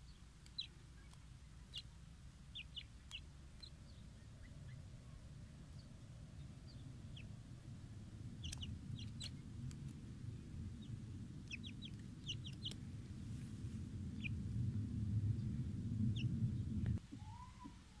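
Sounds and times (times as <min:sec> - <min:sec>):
bird chick peeping: 0:00.0 - 0:18.0
low rumble: 0:03.4 - 0:17.0.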